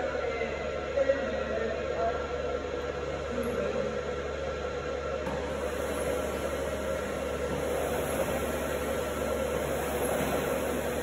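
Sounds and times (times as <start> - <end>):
mechanical whir: 5.2 - 11.0.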